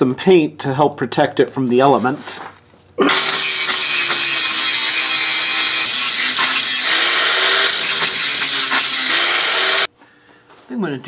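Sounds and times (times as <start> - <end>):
angle grinder grinding metal: 3.0 - 9.9.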